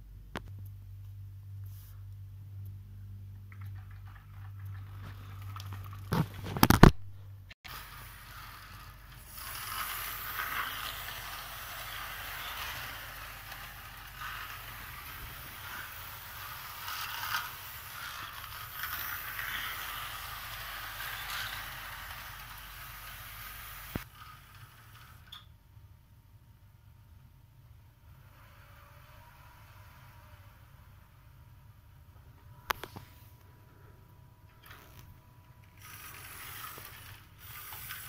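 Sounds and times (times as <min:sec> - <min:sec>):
model train rattling: 0:07.7 - 0:25.4, 0:34.6 - 0:38.0.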